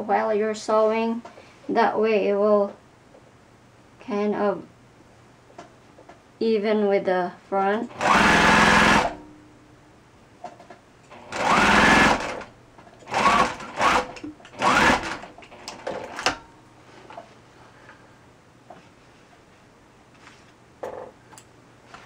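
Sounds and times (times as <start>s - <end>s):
sewing machine stitching: 7.9s - 9.2s, 11.1s - 16.4s.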